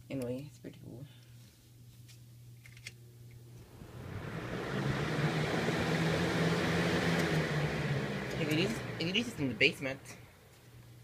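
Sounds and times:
fan air rushing: 3.5 - 11.0
low motor hum: 3.6 - 10.4.

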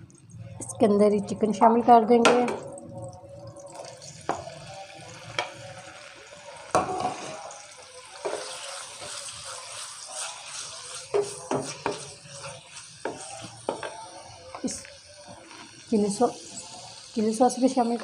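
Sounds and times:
chicken sizzling in frying pan: 3.8 - 18.0
wooden spatula knocking on pan: 11.1 - 12.0, 13.1 - 14.0.

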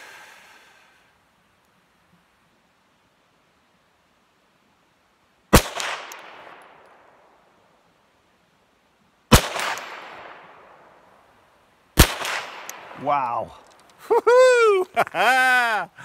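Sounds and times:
pistol shots with echo: 5.5 - 6.6, 9.3 - 10.7, 12.0 - 13.0.

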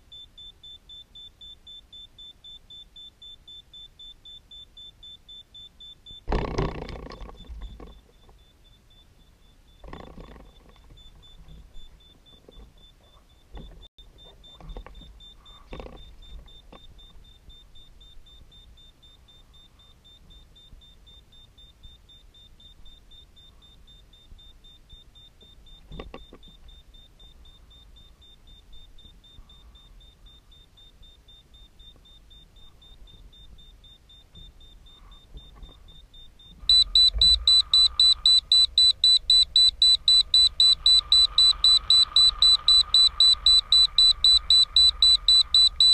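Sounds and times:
electronic beeper beeping: 0.0 - 45.9
faint high whine: 0.0 - 45.9.

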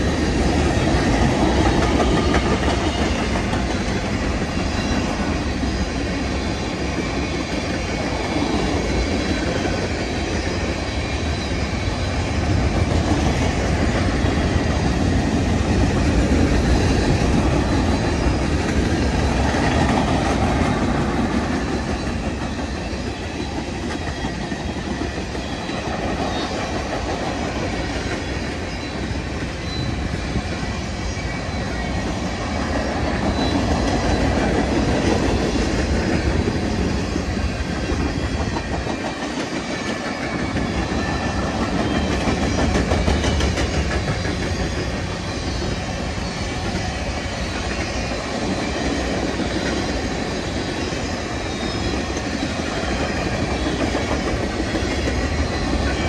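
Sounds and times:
wheels clicking over rail joints: 0.0 - 10.5
freight train rumbling past: 0.0 - 56.0.

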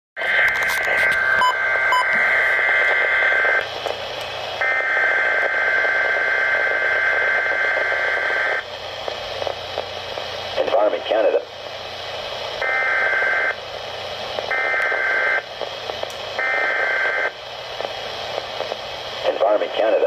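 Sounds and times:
radio hiss: 0.2 - 20.0
short beeps: 1.1 - 2.2.

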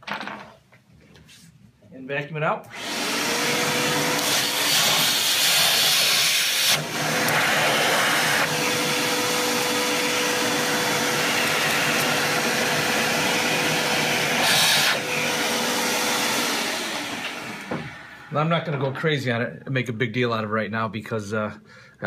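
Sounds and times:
vacuum cleaner running: 2.7 - 19.0.

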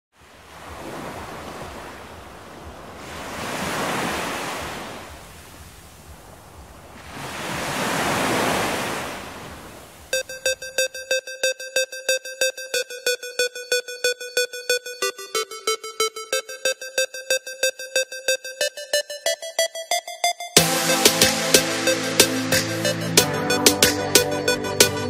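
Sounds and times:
ocean surf on beach: 0.2 - 10.6, 20.6 - 23.9
electronic synth music: 10.1 - 25.0.

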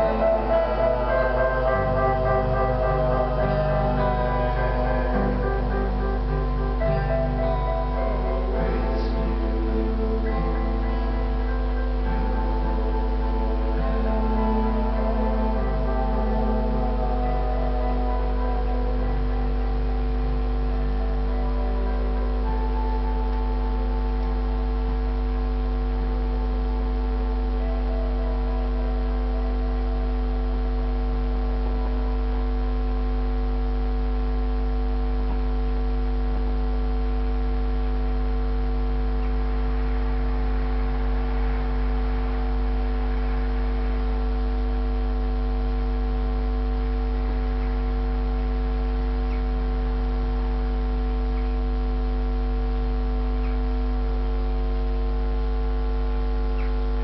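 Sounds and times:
faint held notes: 0.0 - 30.3
low hum with overtones: 0.0 - 57.0.

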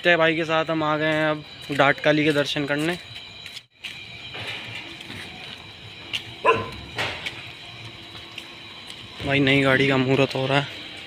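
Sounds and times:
low street noise: 0.0 - 11.0
dog barking: 6.4 - 6.8.

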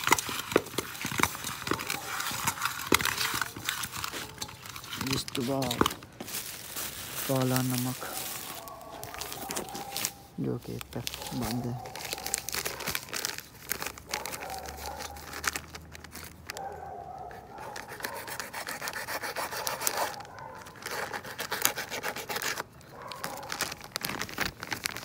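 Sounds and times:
hands rubbing and scraping salt: 0.0 - 16.6.

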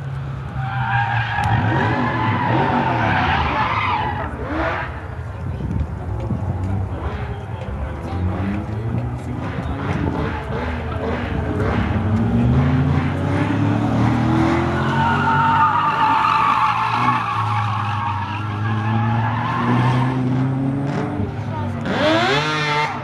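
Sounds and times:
car engine revving: 6.2 - 23.0
tyres squealing: 14.6 - 20.2.

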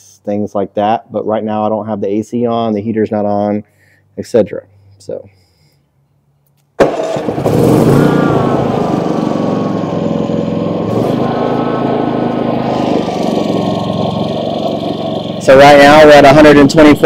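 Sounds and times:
generator engine running steadily: 6.9 - 16.6.

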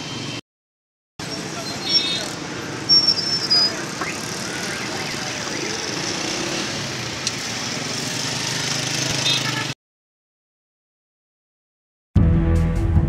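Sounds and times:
motorcycle engines humming: 1.2 - 9.8.

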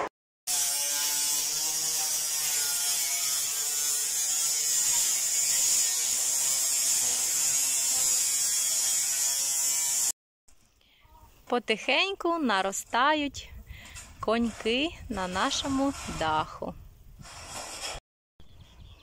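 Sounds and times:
angle grinder cutting steel: 0.5 - 10.2.

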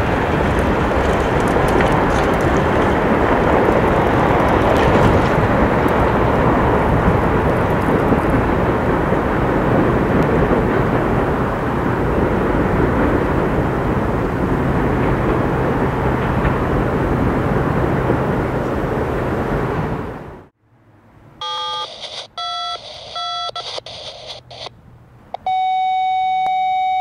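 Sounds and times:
freight train rumbling on rails: 0.0 - 20.5.

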